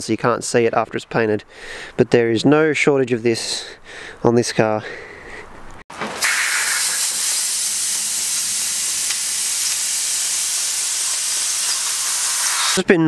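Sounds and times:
air blow gun hissing: 0:06.2 - 0:12.9.

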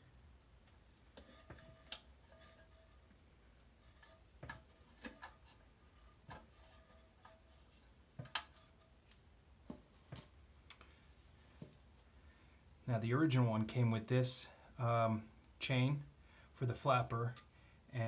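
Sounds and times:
plastic parts clicking and tapping: 0:04.0 - 0:05.6, 0:06.3 - 0:10.9.

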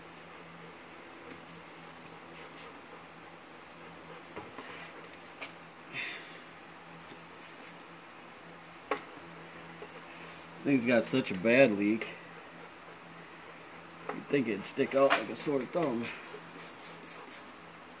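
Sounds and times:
faint steady hum: 0:00.0 - 0:18.0
spray bottle squirts: 0:16.6 - 0:17.5.

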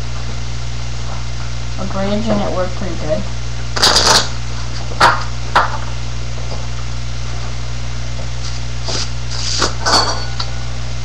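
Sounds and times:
electrical hum and hiss: 0:00.0 - 0:11.0
playing cards snapping and rustling: 0:03.8 - 0:04.3.

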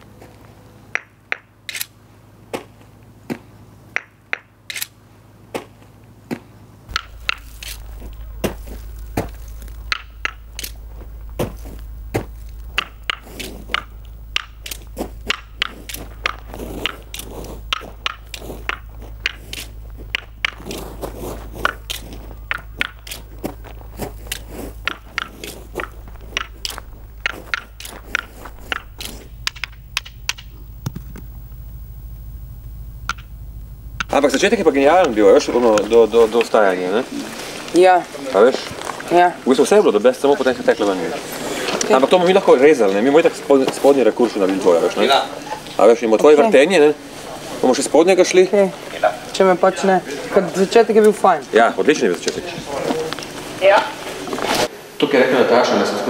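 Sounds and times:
sharp crackles and clicks: 0:06.9 - 0:40.8
low steady hum: 0:06.9 - 0:54.8.

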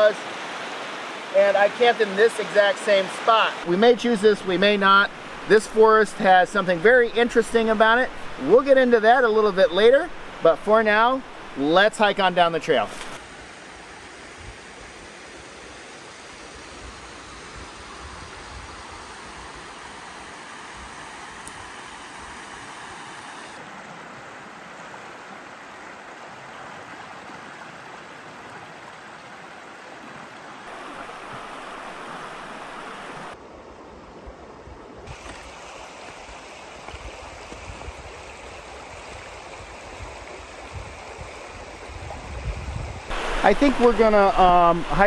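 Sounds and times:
creek water rushing over stones: 0:00.0 - 0:34.1, 0:35.1 - 0:42.4, 0:43.1 - 0:45.0.

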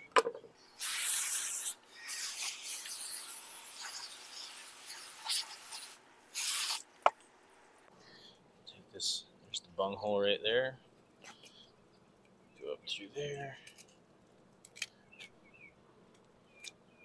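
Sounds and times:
hose nozzle spraying water: 0:00.7 - 0:06.8.

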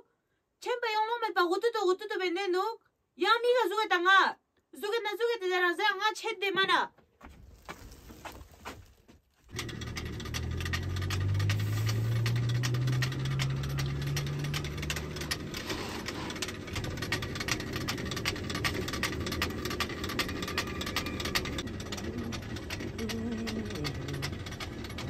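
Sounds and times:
stone mill grinding rumble: 0:09.4 - 0:25.0
feed mechanism rattling clicks: 0:09.5 - 0:25.0.

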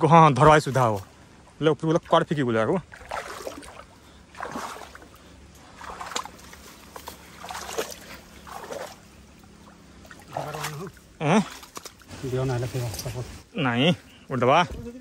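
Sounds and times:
bare feet squelching in mud: 0:02.8 - 0:13.2
brushing through leafy undergrowth: 0:10.2 - 0:13.5.

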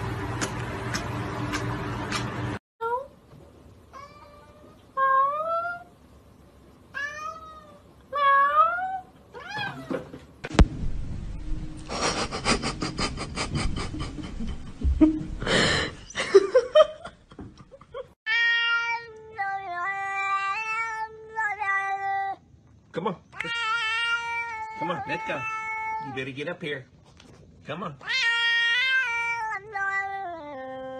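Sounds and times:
cats meowing: 0:07.0 - 0:10.1, 0:18.3 - 0:22.4, 0:23.4 - 0:26.2, 0:28.0 - 0:30.9.

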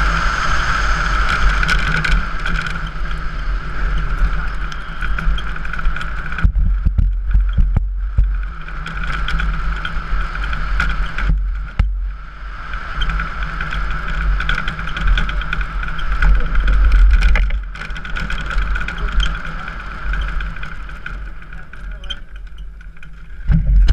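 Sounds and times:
wheels rumbling on road: 0:00.0 - 0:23.9
wind buffeting microphone: 0:00.0 - 0:23.9
knocks and rattles from bumps: 0:04.0 - 0:12.1, 0:13.0 - 0:23.9.

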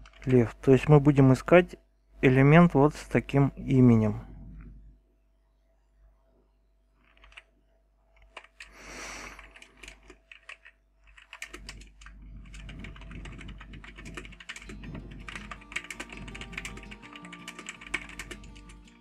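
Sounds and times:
typing on computer keyboard: 0:00.0 - 0:00.5, 0:07.0 - 0:07.5, 0:08.2 - 0:08.7, 0:09.3 - 0:19.0.

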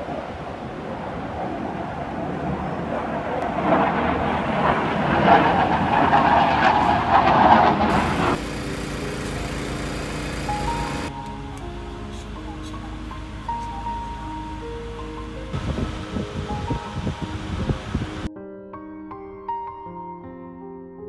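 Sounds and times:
heavy vehicle engine and road noise: 0:06.7 - 0:18.3
portable generator humming: 0:07.8 - 0:18.3.

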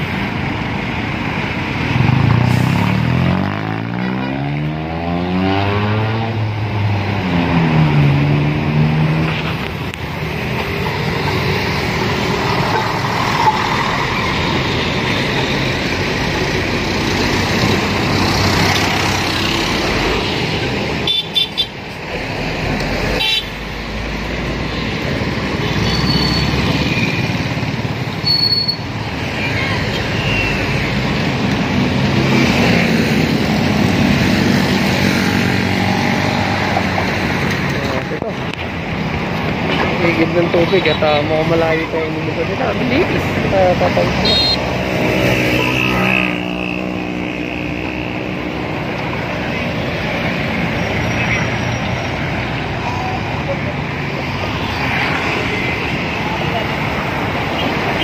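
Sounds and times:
steady traffic noise: 0:00.0 - 0:58.0.

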